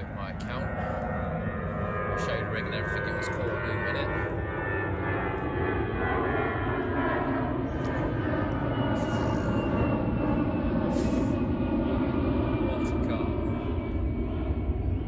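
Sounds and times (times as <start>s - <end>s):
jet airliner rumble with whine: 0.0s - 15.0s.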